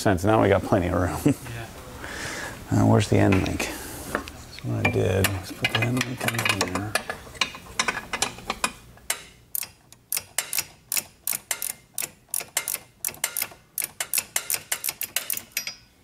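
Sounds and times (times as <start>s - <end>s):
ratcheting wrench clicking: 6.4s - 15.8s.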